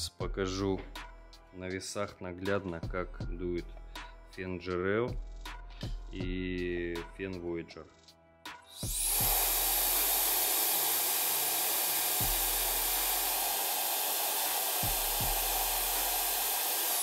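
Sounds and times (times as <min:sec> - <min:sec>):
hair dryer blowing air: 0:08.7 - 0:17.0.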